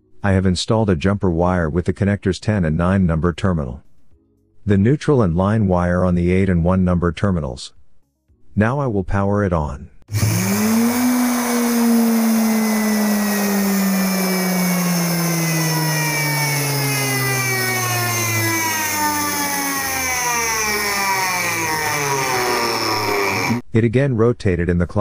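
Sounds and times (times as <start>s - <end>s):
electric motor whining: 10.1s - 23.6s.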